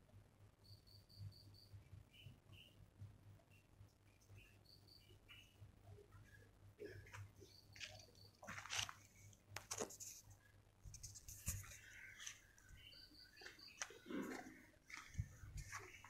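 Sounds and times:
leaves and twigs rustling: 7.8 - 10.3.

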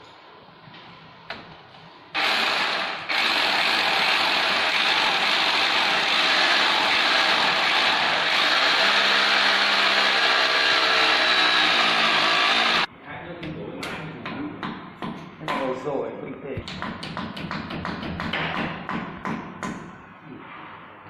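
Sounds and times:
electric drill boring into wall: 2.2 - 12.9.

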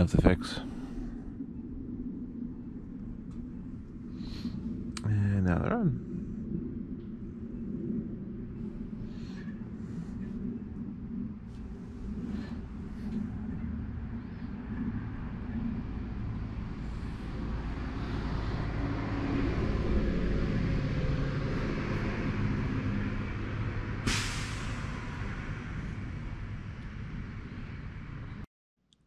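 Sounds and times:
vehicle engine rumbling: 0.0 - 28.5
sharp hiss: 24.0 - 25.0.

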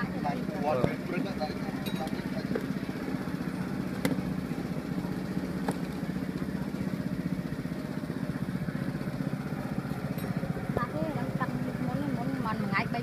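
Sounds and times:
small engine idling: 0.0 - 13.0.

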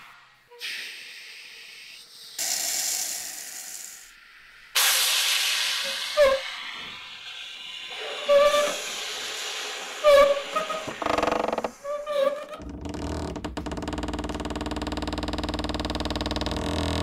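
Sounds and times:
airy hiss: 0.0 - 12.5.

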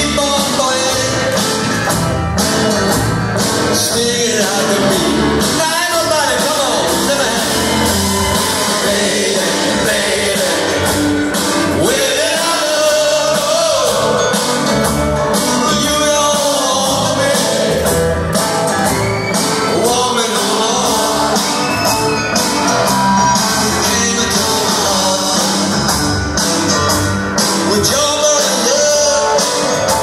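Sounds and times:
man singing: 0.0 - 1.8, 3.7 - 18.2, 19.5 - 21.9, 22.9 - 26.0, 27.6 - 30.0
bass guitar: 0.0 - 30.0
drum kit beat: 0.0 - 30.0
electric guitars: 0.0 - 30.0.

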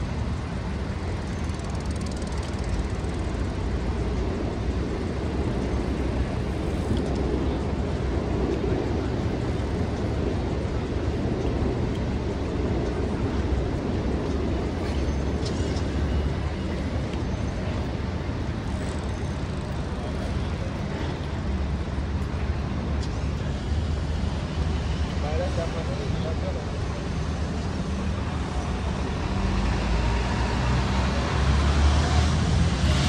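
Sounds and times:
city street traffic rumble: 0.0 - 33.0.

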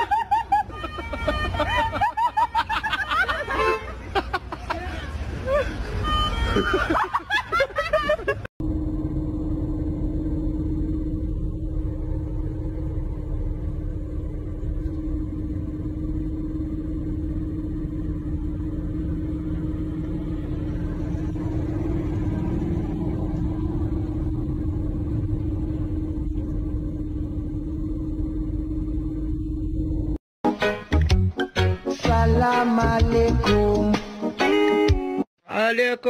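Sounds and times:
excavator engine running: 5.8 - 30.2
heavy low rumble: 8.6 - 30.2.

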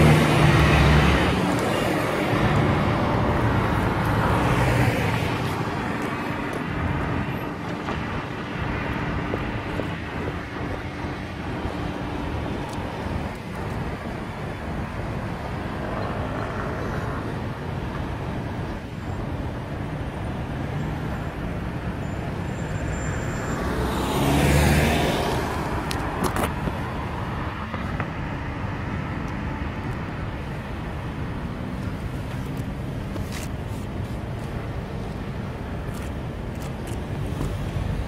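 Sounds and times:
traffic hum: 0.0 - 38.0
vehicle passing close by: 23.5 - 26.4.

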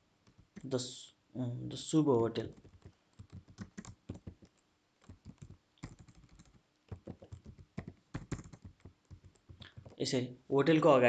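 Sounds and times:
keyboard typing clicks: 2.5 - 10.0.

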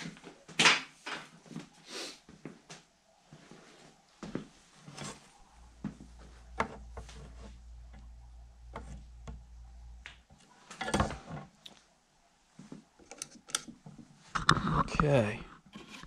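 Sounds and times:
person shuffling about: 1.2 - 7.8
faint low hum: 2.4 - 16.0
tools and wood being handled: 5.9 - 11.7, 12.8 - 14.6, 15.5 - 16.0.

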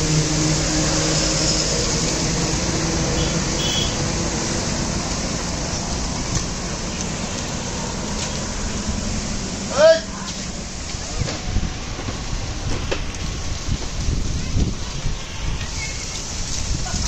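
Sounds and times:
storm wind buffeting microphone: 10.5 - 17.0.

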